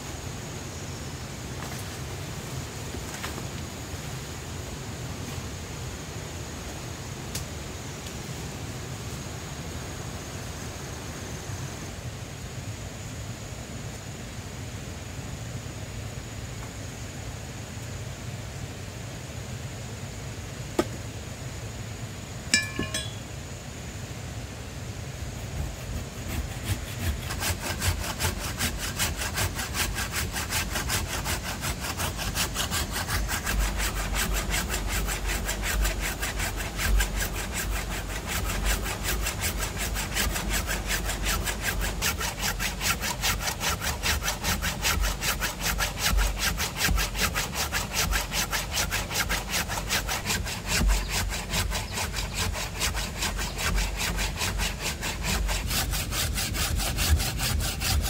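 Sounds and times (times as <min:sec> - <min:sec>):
hand saw cutting wood: 0:22.6 - 0:23.2, 0:25.4 - 0:58.0.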